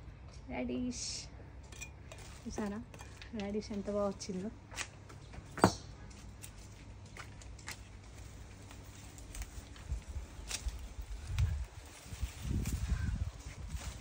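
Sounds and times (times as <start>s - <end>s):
light clicks and leaf rustles: 6.0s - 14.0s.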